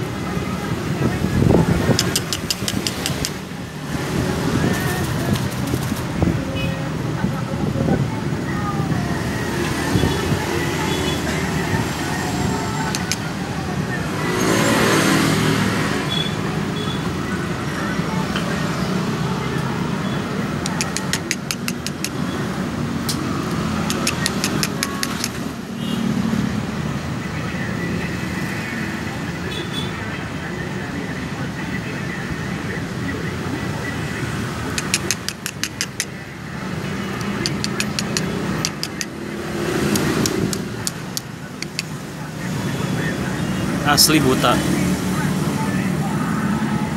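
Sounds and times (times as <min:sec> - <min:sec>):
sharp high ticks: 0:01.9 - 0:03.4, 0:12.9 - 0:13.3, 0:20.6 - 0:22.2, 0:23.1 - 0:25.4, 0:34.7 - 0:36.2, 0:37.2 - 0:39.2, 0:39.8 - 0:42.0.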